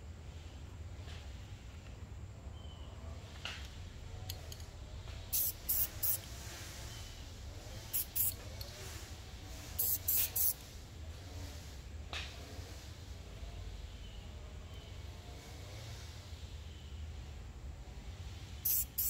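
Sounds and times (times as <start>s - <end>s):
spray can hissing: 5.3s - 7.2s, 7.8s - 10.8s, 18.6s - 19.0s.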